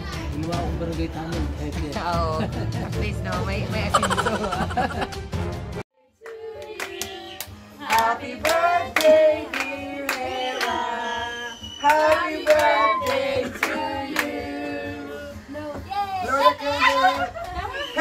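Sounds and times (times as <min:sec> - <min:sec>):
women and children singing: 0:06.0 - 0:15.3
people clapping: 0:06.2 - 0:10.8, 0:11.8 - 0:14.3.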